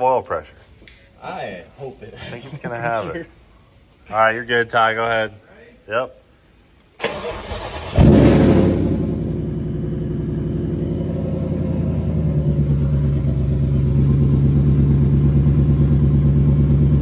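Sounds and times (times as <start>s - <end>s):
supercharged engine idling: 7.5s - 17.0s.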